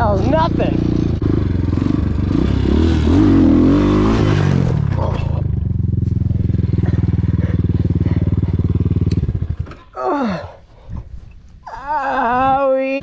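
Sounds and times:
dirt bike engine revving: 0.0s - 10.0s
wind noise: 10.7s - 13.0s.

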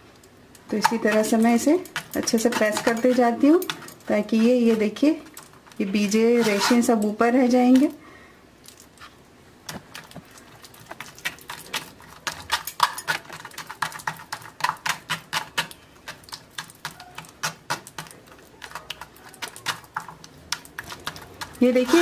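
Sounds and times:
spoon scraping wire-mesh strainer: 0.7s - 7.2s, 11.0s - 22.0s.

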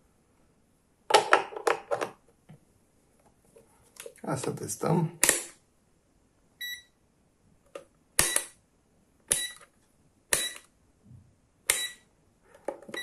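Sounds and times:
multimeter beep: 6.6s - 7.0s, 8.2s - 8.6s, 9.3s - 9.6s, 10.4s - 10.7s, 11.7s - 12.1s.

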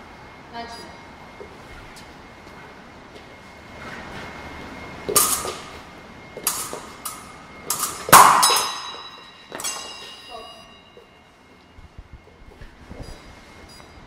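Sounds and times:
fencing blades clashing: 5.1s - 5.8s, 6.4s - 11.0s
blades ringing: 5.1s - 11.8s.

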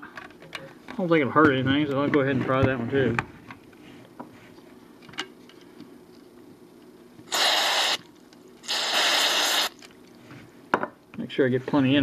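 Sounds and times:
aerosol spray hiss: 7.3s - 8.0s, 8.6s - 9.7s.

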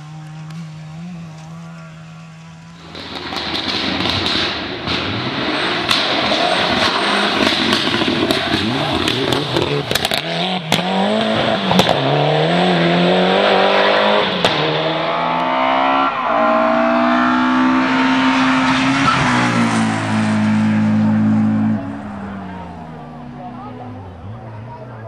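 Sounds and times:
rally car engine at full throttle: 0.0s - 25.0s
second rally car engine revving high: 0.0s - 25.0s
sharp cracks: 2.8s - 12.0s.

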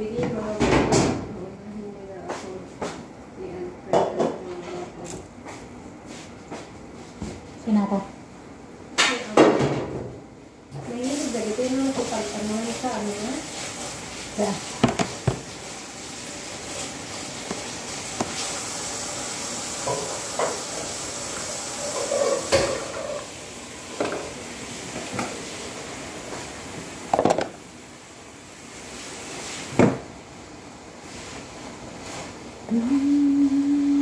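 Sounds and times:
meat sizzling in a pan: 12.0s - 24.8s.

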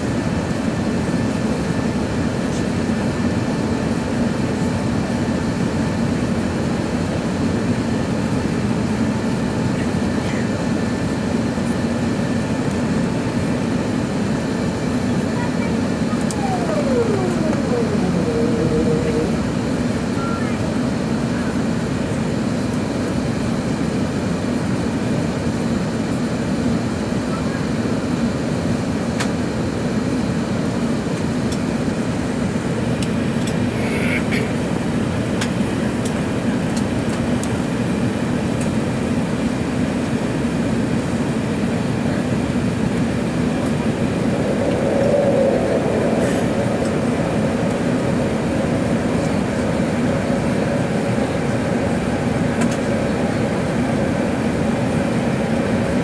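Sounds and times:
jet engines rumbling: 0.1s - 56.0s
rushing airflow: 15.8s - 20.8s, 42.4s - 56.0s.

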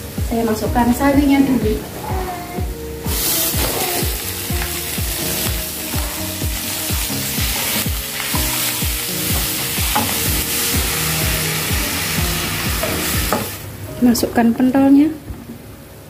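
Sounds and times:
background music with beat: 0.0s - 13.4s
greens sizzling in oil: 3.0s - 13.7s.

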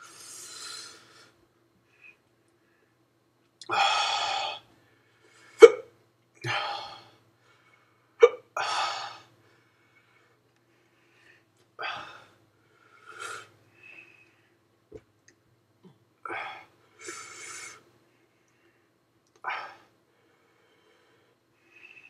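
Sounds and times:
man breathing hard: 6.4s - 14.6s, 16.2s - 22.0s.

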